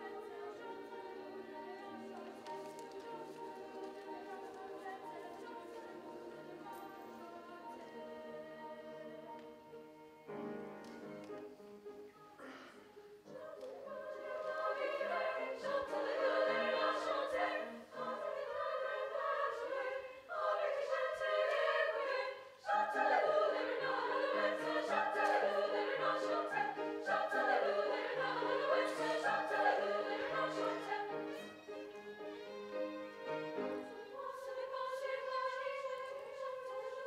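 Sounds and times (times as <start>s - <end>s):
women's choir singing: 0.0s - 11.6s, 12.4s - 37.0s
violin playing: 13.0s - 37.0s.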